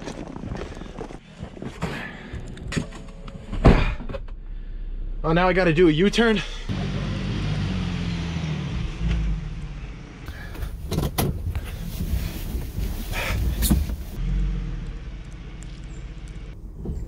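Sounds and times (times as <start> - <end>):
van engine running: 6.4 - 17.0.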